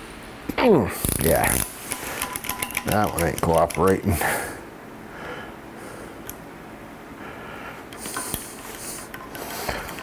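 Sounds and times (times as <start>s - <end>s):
sharp metal tool clicks: 2.2s - 4.0s
man breathing hard through nose: 4.1s - 6.2s, 7.2s - 10.0s.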